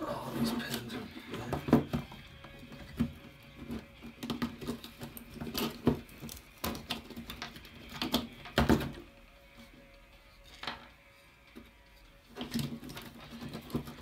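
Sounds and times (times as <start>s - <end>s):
plastic parts knocking on wood: 1.0s - 9.0s.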